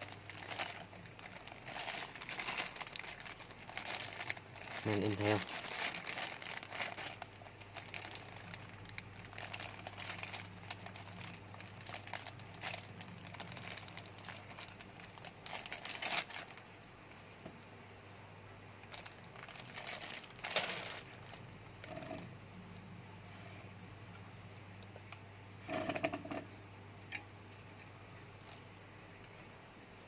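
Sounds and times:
plastic bag crinkling: 0.0 - 16.7, 18.8 - 22.3.

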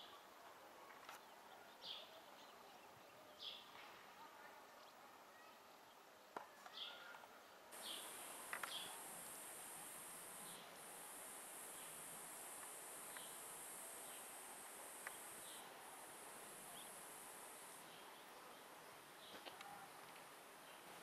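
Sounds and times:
high-pitched insect drone: 7.8 - 17.8.

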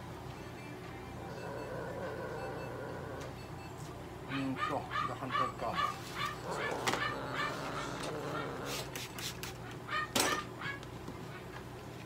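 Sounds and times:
cat crying: 4.3 - 8.8.

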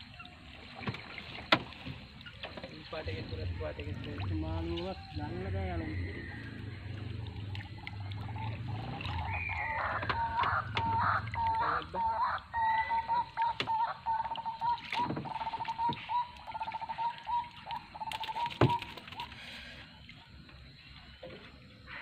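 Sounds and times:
animal crowing calls: 7.9 - 14.2.

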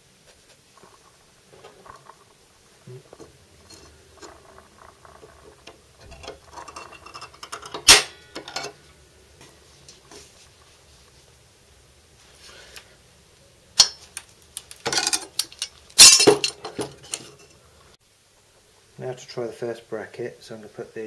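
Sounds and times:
tools clicking and rustling: 3.1 - 8.8, 13.8 - 17.6
sharp metallic clack: 7.4 - 8.8.

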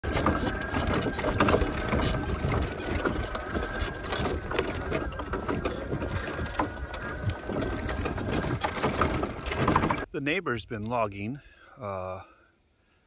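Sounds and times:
electric mower motor whine: 0.0 - 10.1
wooden frame clicking and rattling: 0.0 - 10.1.

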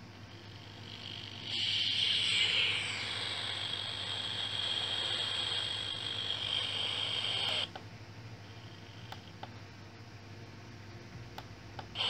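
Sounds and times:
radio static hiss: 0.0 - 7.8.

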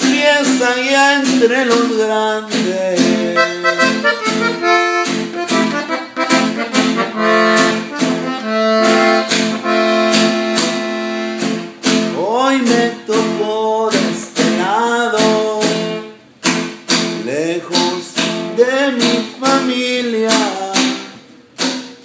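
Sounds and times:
button accordion playing: 3.2 - 11.8.

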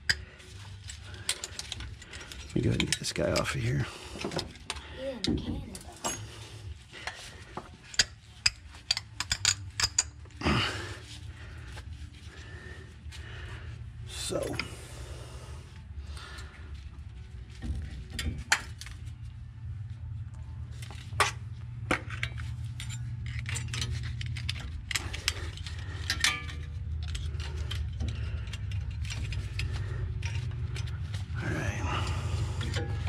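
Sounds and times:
steady low rumble: 0.0 - 33.0
metal brake parts clinking: 7.8 - 10.4, 20.8 - 31.4.

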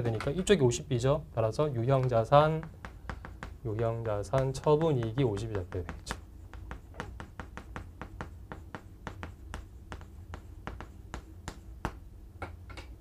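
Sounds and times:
chalk clicking on chalkboard: 1.9 - 12.1.

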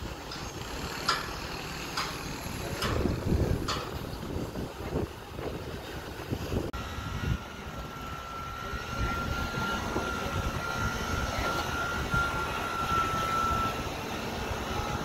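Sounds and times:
crane engine running with high whine: 0.0 - 15.0
rumbling machinery: 0.0 - 15.0.

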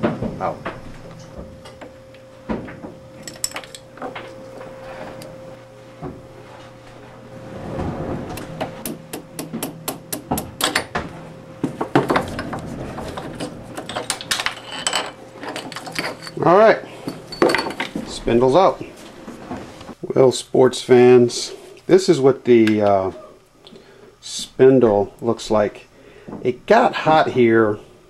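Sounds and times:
faint steady hum: 0.0 - 28.0
hammer tapping on metal: 8.8 - 10.8.

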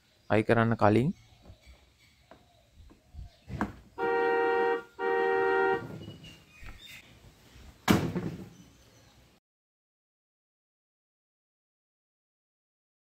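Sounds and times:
electronic toy horn beeps: 4.0 - 5.9.

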